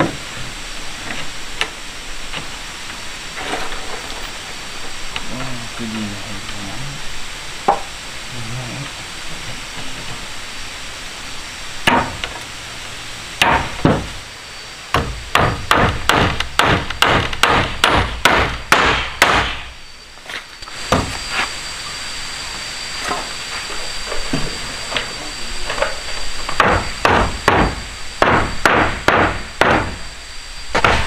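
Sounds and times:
hand tool striking wood: 11.9s - 12.3s, 13.4s - 14.1s, 15.0s - 19.6s, 20.9s - 21.2s, 26.5s - 30.0s.

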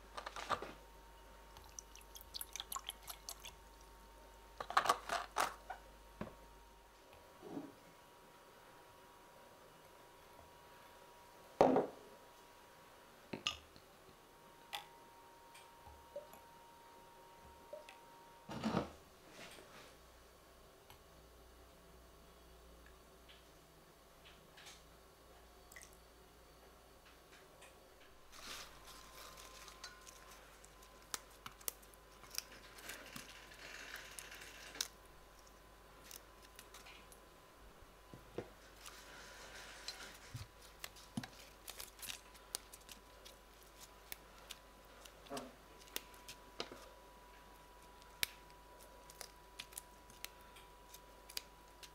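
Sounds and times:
rustling of leaves being plucked: 28.3s - 34.9s.

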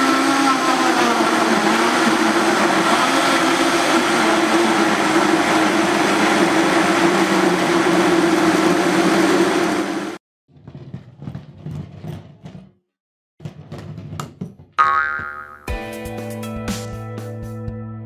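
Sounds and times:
blender motor hum: 0.0s - 10.2s.

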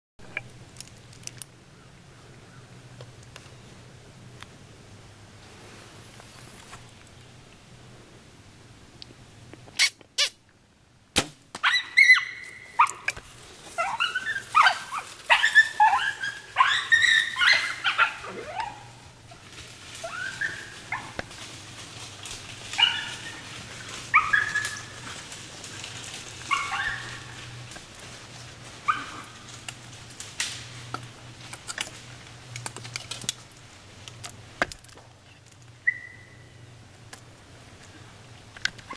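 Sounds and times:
coyote calling: 11.6s - 19.1s, 20.0s - 21.2s, 22.8s - 25.2s, 26.4s - 27.6s, 35.8s - 36.6s.

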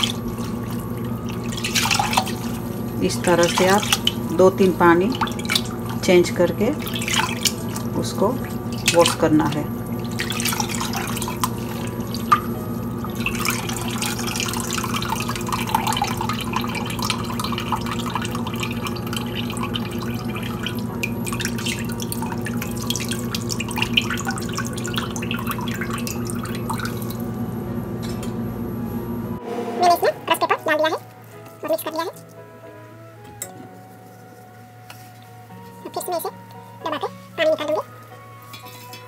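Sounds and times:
water sloshing and dripping: 0.0s - 27.4s
steady low hum: 0.0s - 35.5s.

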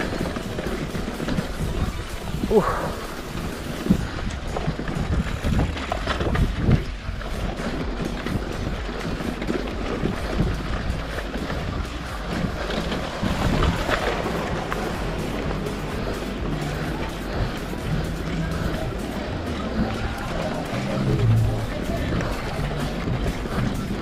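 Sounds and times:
bike knocks and rattles: 0.0s - 24.0s
wind rushing over microphone: 0.0s - 24.0s.

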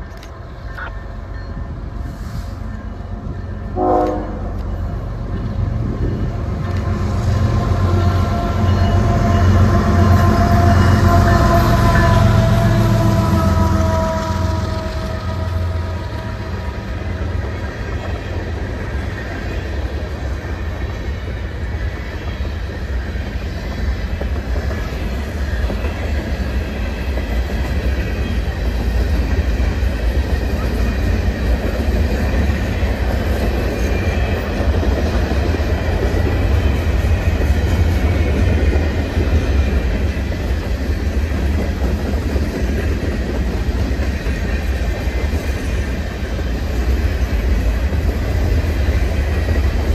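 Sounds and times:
train wheels rumbling on rails: 0.0s - 49.9s.

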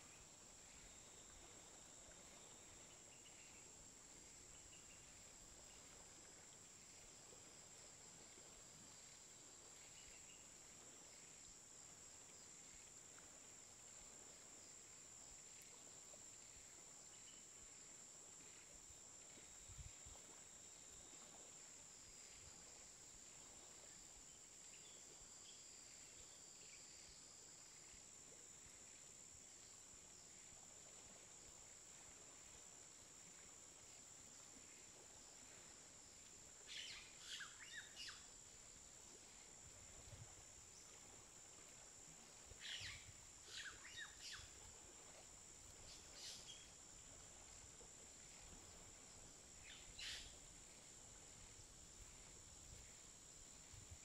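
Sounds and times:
high-pitched insect trill: 36.1s - 54.0s.

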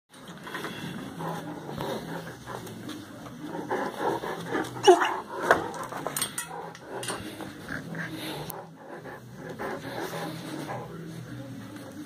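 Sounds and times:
light clicks and clinks: 5.7s - 7.5s.

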